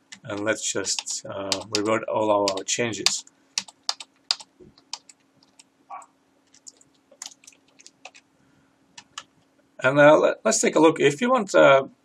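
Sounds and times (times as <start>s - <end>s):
computer keyboard keys tapping: 0.0s - 5.7s, 6.5s - 8.2s, 9.0s - 9.3s
faint steady hum: 0.0s - 12.0s.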